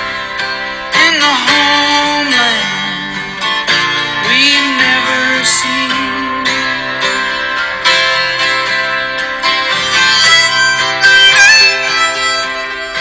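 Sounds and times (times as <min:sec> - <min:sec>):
plucked guitar: 0:00.0 - 0:13.0
person singing: 0:00.9 - 0:07.5.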